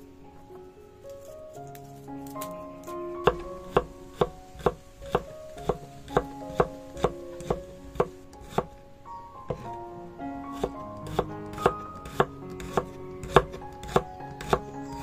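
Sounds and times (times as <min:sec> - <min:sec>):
soft guitar music: 0:00.0 - 0:15.0
knife chopping on wooden board: 0:03.3 - 0:08.7, 0:10.6 - 0:14.6.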